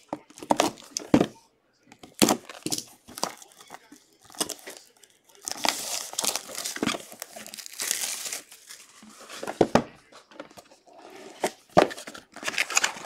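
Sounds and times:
plastic wrap tearing and crinkling: 0:02.1 - 0:09.5.

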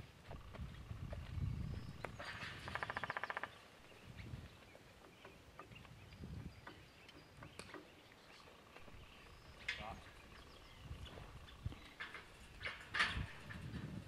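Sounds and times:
rattling animal call: 0:02.2 - 0:03.6.

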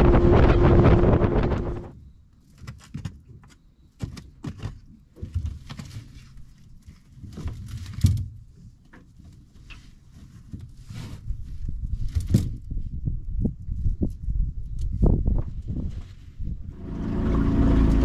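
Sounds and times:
wind and boat engine noise: 0:00.0 - 0:02.0, 0:14.6 - 0:18.0.

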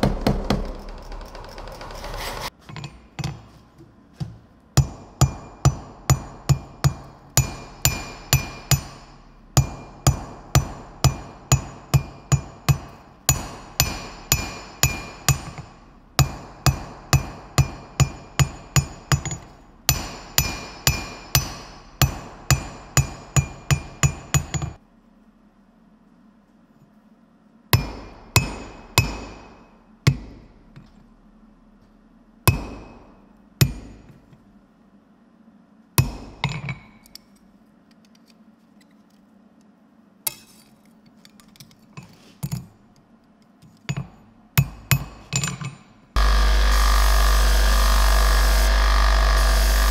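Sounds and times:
hammer striking metal on anvil: 0:04.8 - 0:24.8, 0:27.7 - 0:30.6, 0:32.5 - 0:34.2, 0:36.0 - 0:37.1, 0:43.9 - 0:46.4.

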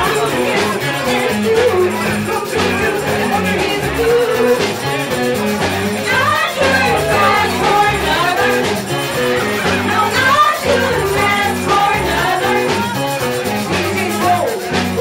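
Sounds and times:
live rock band playing: 0:00.0 - 0:15.0
person singing: 0:00.0 - 0:15.0.

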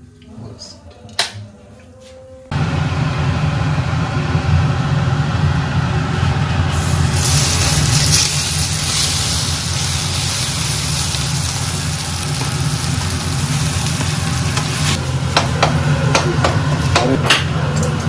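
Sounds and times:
motor-like hum with hiss: 0:06.6 - 0:17.8.

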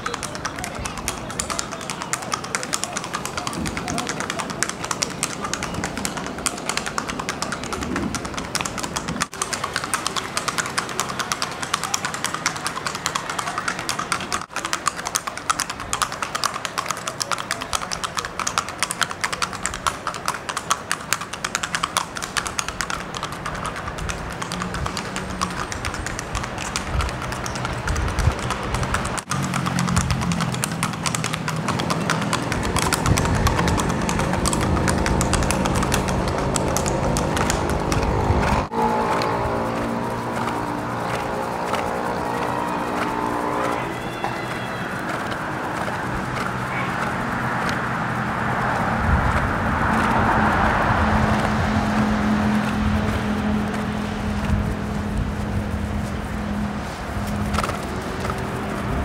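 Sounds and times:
hooves on stone: 0:00.0 - 0:59.0.

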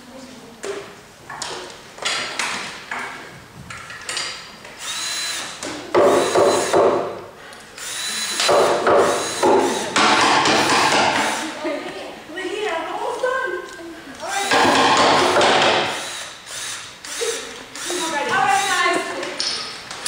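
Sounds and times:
power drill running: 0:04.8 - 0:06.9, 0:07.8 - 0:11.6, 0:14.3 - 0:19.1.

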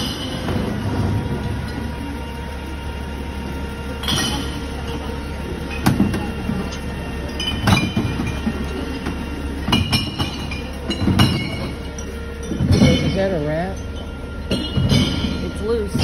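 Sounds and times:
garbage truck humming: 0:00.0 - 0:16.0
wheelie bins clanking: 0:03.8 - 0:16.0.

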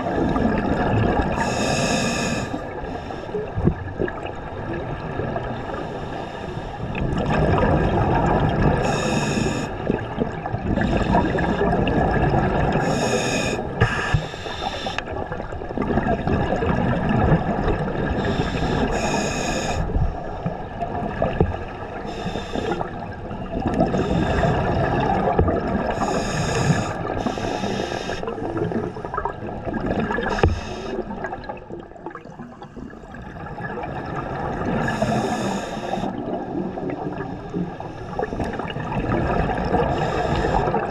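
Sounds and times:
exhaled air bubbling underwater: 0:00.0 - 0:40.9
regulator inhalation hiss: 0:01.4 - 0:03.2, 0:08.8 - 0:09.7, 0:12.8 - 0:15.0, 0:18.2 - 0:19.9, 0:22.1 - 0:22.8, 0:26.0 - 0:28.3, 0:30.3 - 0:31.0, 0:34.9 - 0:36.1.

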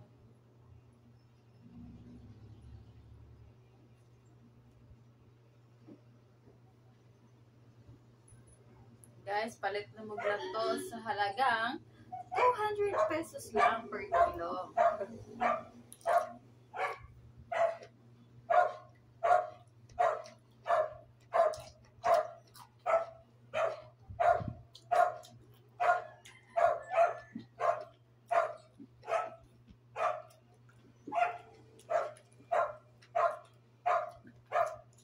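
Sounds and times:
steady low hum: 0:00.0 - 0:35.0
dog barking: 0:10.2 - 0:10.6, 0:12.2 - 0:17.9, 0:18.5 - 0:29.4, 0:30.0 - 0:30.4, 0:31.1 - 0:34.9.

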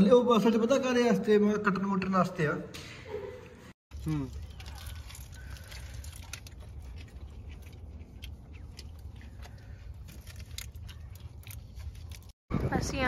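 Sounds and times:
aluminium foil crinkling: 0:03.9 - 0:12.4
person chewing: 0:03.9 - 0:12.4.

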